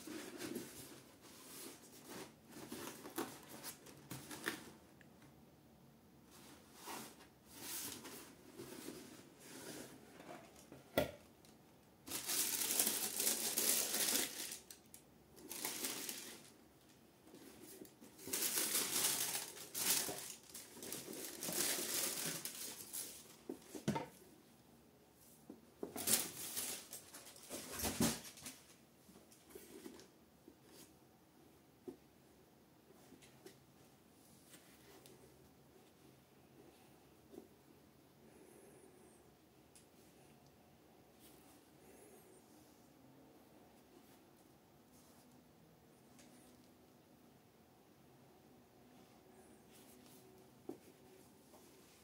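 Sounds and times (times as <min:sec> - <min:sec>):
tissue paper crinkling: 0:12.0 - 0:14.8, 0:15.4 - 0:16.6, 0:17.5 - 0:23.5, 0:26.0 - 0:28.7.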